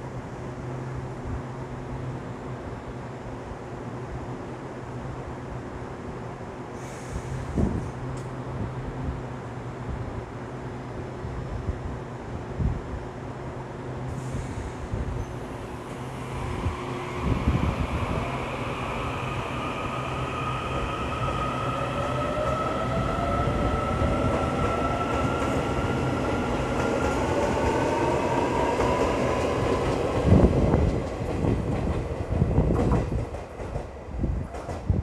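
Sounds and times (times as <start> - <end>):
rail rumble: 11.2 - 35.0.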